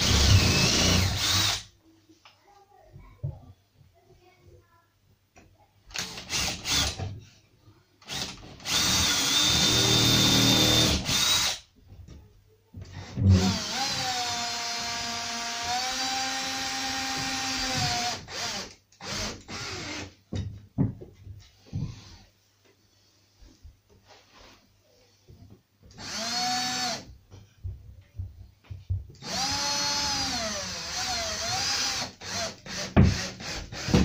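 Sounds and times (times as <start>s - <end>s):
cordless drill boring into wood: 0.0s - 1.6s, 6.0s - 7.0s, 8.1s - 11.6s, 13.0s - 20.1s, 26.0s - 27.0s, 29.2s - 34.0s.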